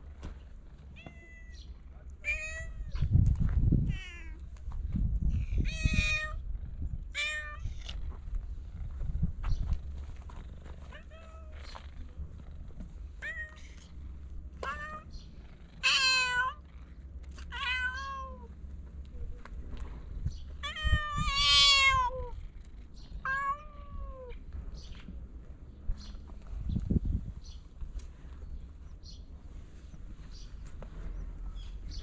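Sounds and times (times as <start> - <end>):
cat meowing: 1.0 - 1.6, 2.2 - 3.1, 3.8 - 4.4, 5.5 - 6.4, 7.1 - 8.0, 13.2 - 13.9, 14.6 - 15.2, 15.8 - 16.6, 17.4 - 18.5, 20.6 - 22.4, 23.2 - 24.4.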